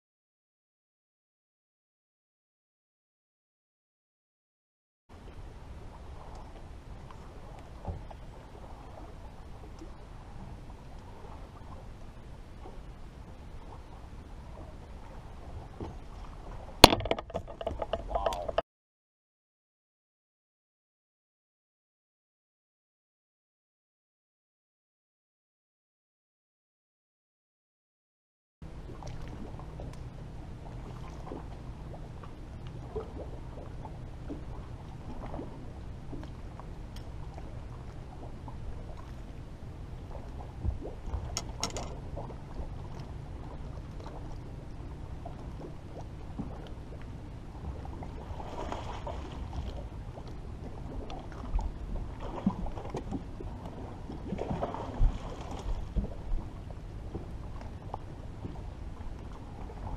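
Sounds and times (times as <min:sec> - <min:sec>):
boat low hum: 0:05.1 - 0:18.6, 0:28.6 - 0:59.9
water and wind noise: 0:05.1 - 0:18.6, 0:28.6 - 0:59.9
fishing tackle clicks and knocks: 0:16.8 - 0:18.6, 0:41.3 - 0:42.0.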